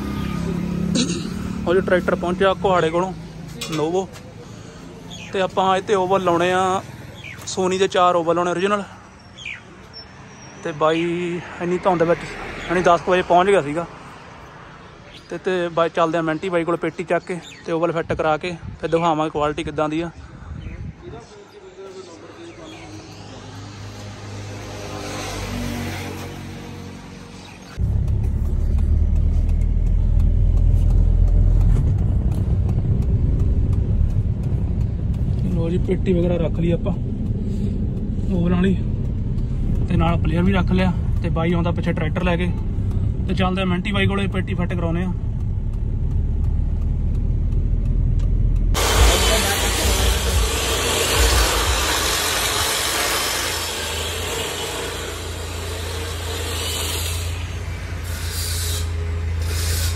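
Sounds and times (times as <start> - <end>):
car engine and road rumble: 0.0 - 17.3, 17.9 - 59.9
broad hiss: 48.8 - 57.5.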